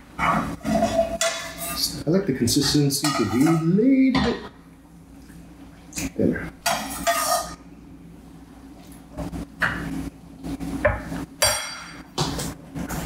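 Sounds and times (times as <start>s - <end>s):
low steady hum: 0.0s - 13.0s
ladle clinking against metal pots: 2.6s - 4.4s, 11.4s - 12.0s.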